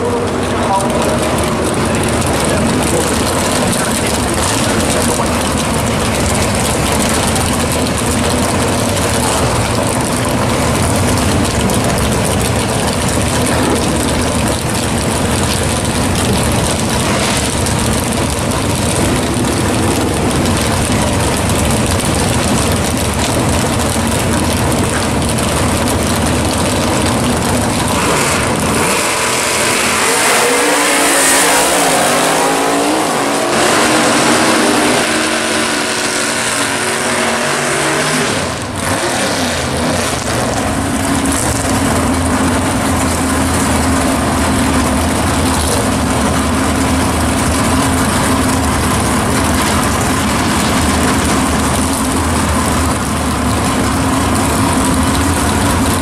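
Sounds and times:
drag racing cars roaring: 0.0 - 56.0
engine revving up in pitch: 28.0 - 40.6.

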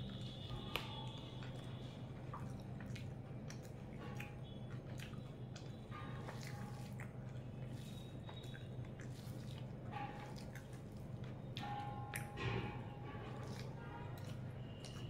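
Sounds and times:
wet chewing mouth sounds: 0.0 - 15.0.

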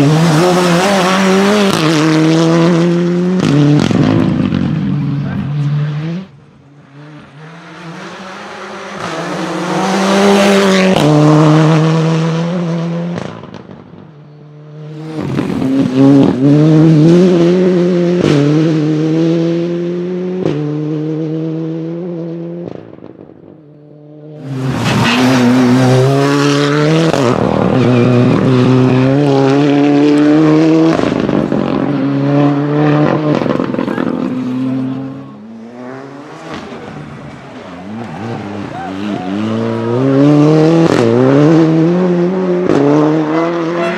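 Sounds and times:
turbocharged engine accelerating: 0.0 - 43.9.

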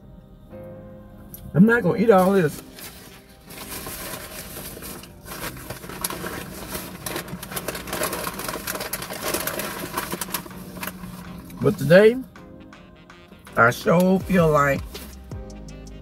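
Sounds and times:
paper wrapping crinkling: 2.1 - 11.9, 14.5 - 15.3.

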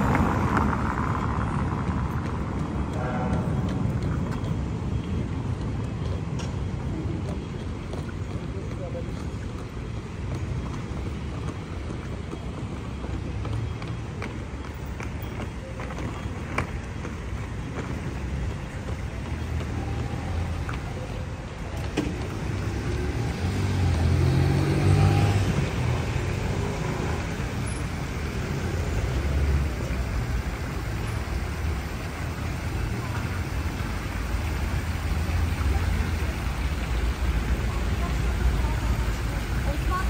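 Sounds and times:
vehicle passing: 0.0 - 5.0, 21.8 - 40.0
traffic rumble: 0.0 - 40.0.

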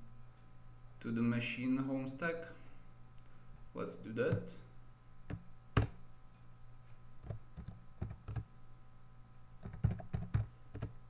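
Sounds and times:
low steady hum: 0.0 - 11.0
keyboard keystrokes: 7.2 - 8.5, 9.6 - 11.0.

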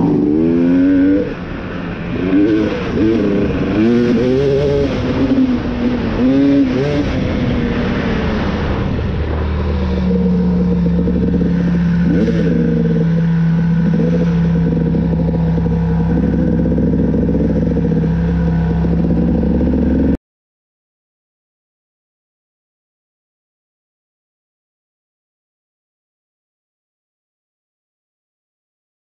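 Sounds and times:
dirt bike engine revving: 0.0 - 20.2.

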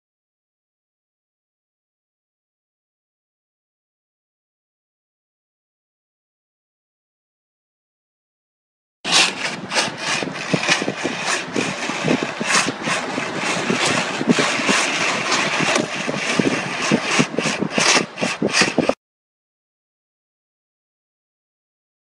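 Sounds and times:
knocks and rattles: 9.1 - 19.0.

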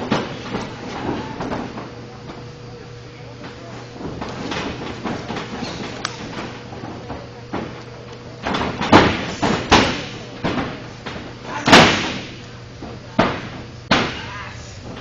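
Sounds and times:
wrestlers hitting the ring: 8.4 - 14.4.

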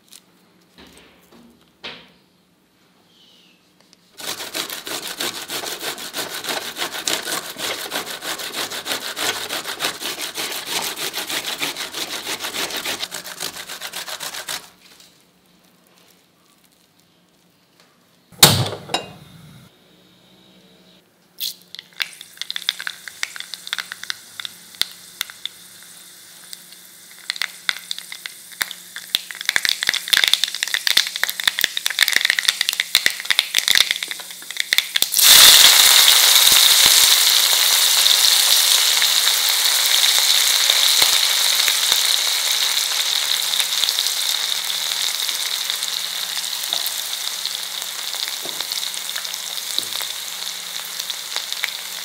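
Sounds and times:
corn rasping on grater: 4.2 - 14.8
hot oil crackling and spitting: 4.2 - 14.8, 21.4 - 52.0.

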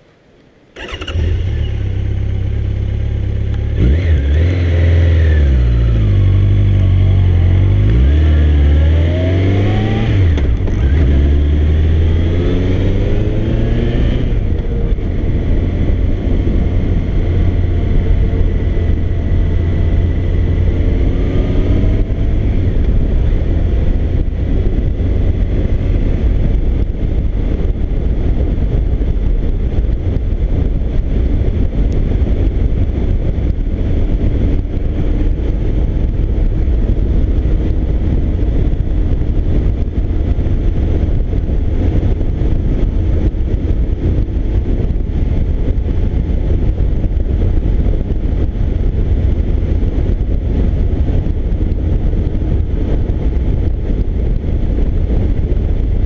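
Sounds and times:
motorcycle engine accelerating: 0.7 - 56.0
wind noise: 0.8 - 56.0.

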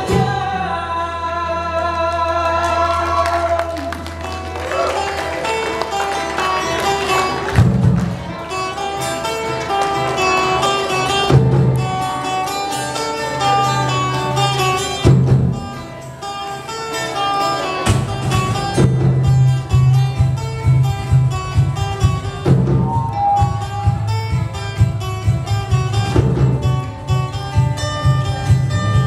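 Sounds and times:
acoustic guitar picking melody: 0.0 - 29.0
sharp percussion accents: 17.9 - 27.4
low bass notes: 17.9 - 29.0.

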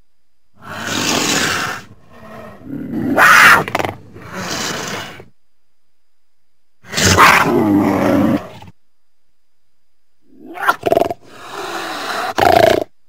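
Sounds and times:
cougar calling: 0.6 - 5.3, 6.8 - 8.7, 10.3 - 12.9.

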